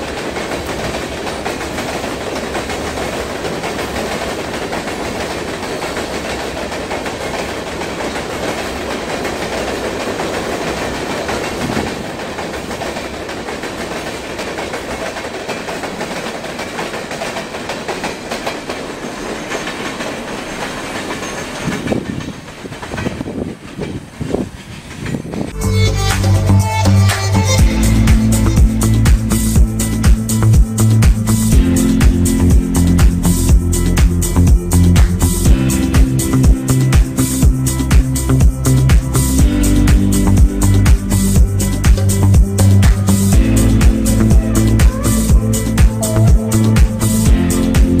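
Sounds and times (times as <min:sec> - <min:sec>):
freight train rolling past: 0:00.0 - 0:48.0
steel wheels clattering over rails: 0:00.0 - 0:48.0.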